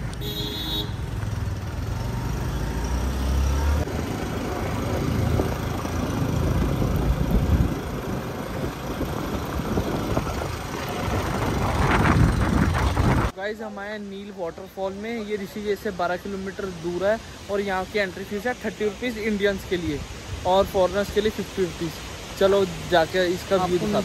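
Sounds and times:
motorcycle engine: 0.0s - 13.3s
road noise: 0.0s - 24.0s
wind rushing on microphone: 6.4s - 13.3s.

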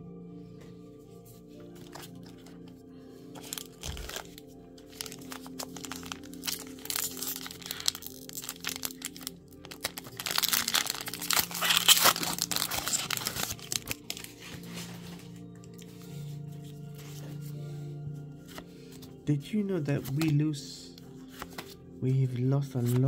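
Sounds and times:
background music: 0.0s - 23.0s
foil wrapper crinkling and tearing: 3.4s - 14.6s.

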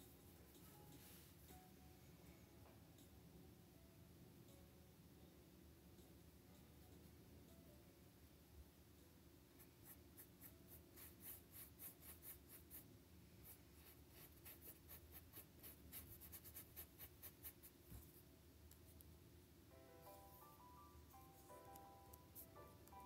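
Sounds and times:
paintbrush scratching on canvas: 9.8s - 18.0s.

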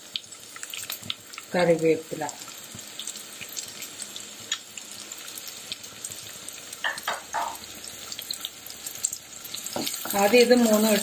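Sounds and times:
aromatics sizzling in hot oil: 0.0s - 11.0s
small crackling pops: 2.4s - 4.9s.

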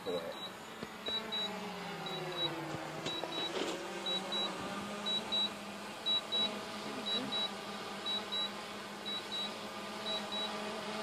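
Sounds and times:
drone propellers whining: 0.0s - 11.0s
high double beep: 1.1s - 1.5s, 2.1s - 3.5s, 4.1s - 5.5s, 6.1s - 6.5s, 7.1s - 7.5s.

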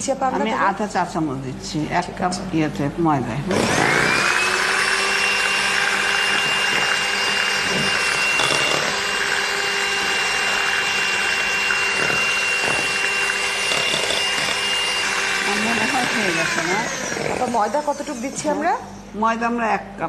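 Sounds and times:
electric hand mixer whining: 3.4s - 19.2s.

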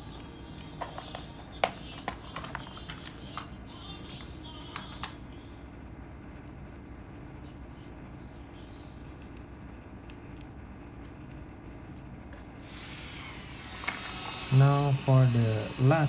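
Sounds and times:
low background noise: 0.0s - 12.6s
steady hiss: 12.6s - 16.0s.

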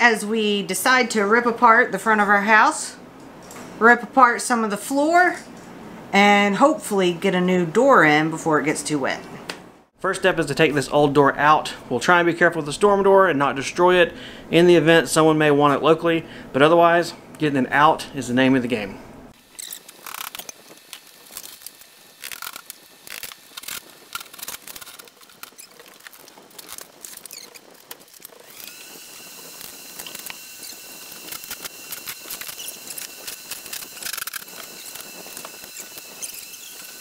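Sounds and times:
faint high whine: 18.7s - 37.0s.

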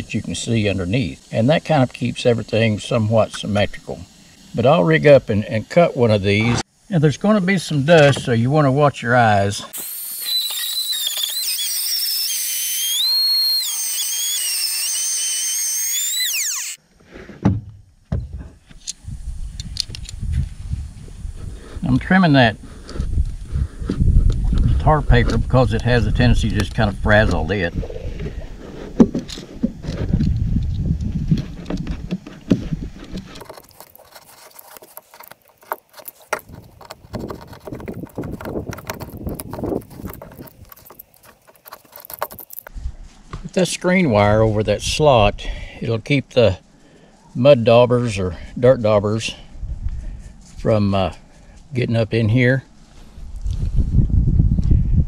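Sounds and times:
router winding down: 9.7s - 16.8s
router whining while cutting wood: 9.8s - 16.8s.

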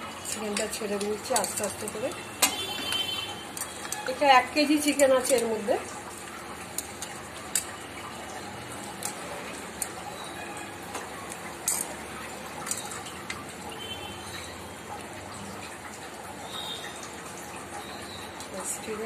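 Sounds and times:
sizzling in a pan: 0.0s - 15.2s.

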